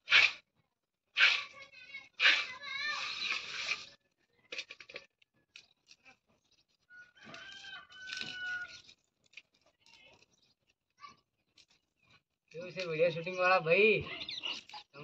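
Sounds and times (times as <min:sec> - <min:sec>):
rooster crowing: 0:06.9 - 0:08.8
garlic bulbs crackling and snapping: 0:07.3 - 0:10.8.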